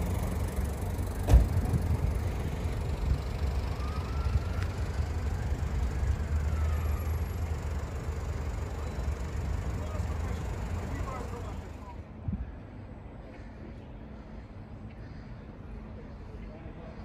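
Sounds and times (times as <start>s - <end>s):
traffic rumble: 0.0s - 17.0s
sharp thump: 1.2s - 1.8s.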